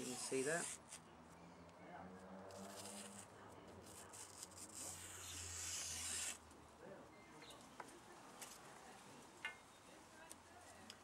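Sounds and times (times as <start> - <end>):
knife slicing through paper: 3.8 - 6.4.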